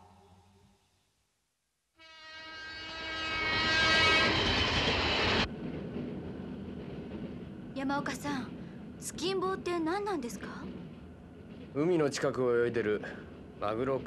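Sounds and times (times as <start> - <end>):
train horn: 2.0 - 5.5
train running rumble: 3.3 - 14.0.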